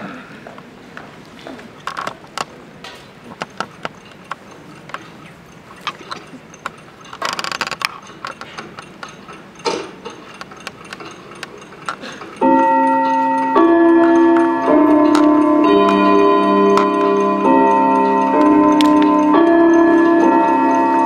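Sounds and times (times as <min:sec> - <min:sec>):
clattering rattle: 0:03.4 - 0:13.2.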